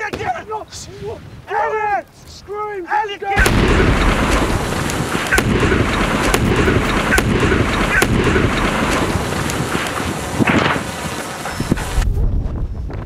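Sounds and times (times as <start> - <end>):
sharp cracks and pops: 3.4 - 12.1
fireball burning with rushing roar: 3.4 - 13.0.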